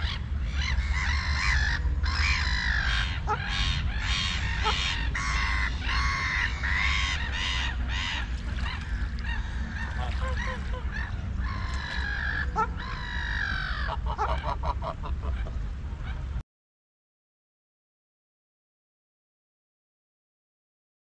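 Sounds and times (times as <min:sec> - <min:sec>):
ducks quacking: 0:00.0 - 0:15.6
steady low rumble: 0:00.0 - 0:16.4.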